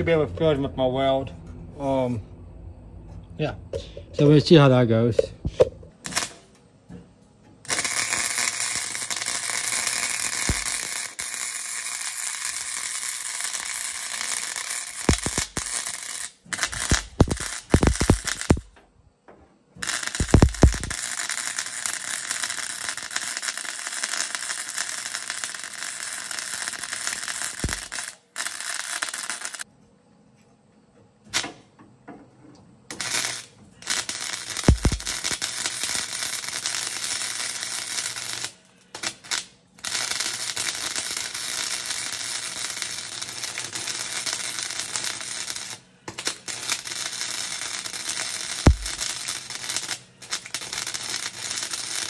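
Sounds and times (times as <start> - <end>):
welding arc crackling: 5.9 - 6.5, 7.6 - 18.7, 19.8 - 29.7, 32.9 - 52.0.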